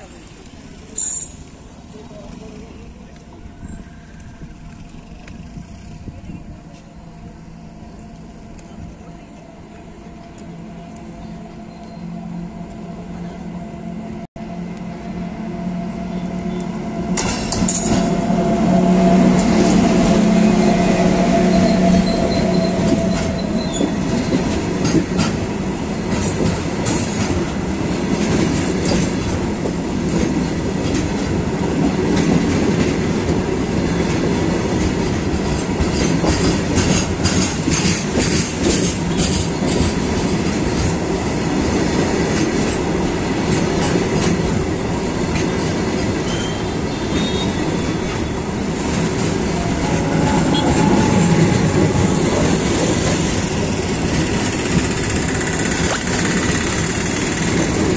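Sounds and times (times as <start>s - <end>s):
wheels clicking over rail joints: 0.0s - 9.0s, 21.6s - 57.9s
train wheels rumbling on rails: 0.0s - 57.9s.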